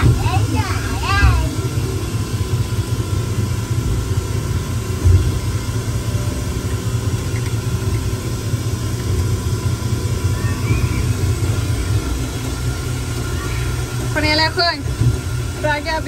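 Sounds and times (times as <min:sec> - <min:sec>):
ride car rumbling on track: 0:00.0 - 0:16.0.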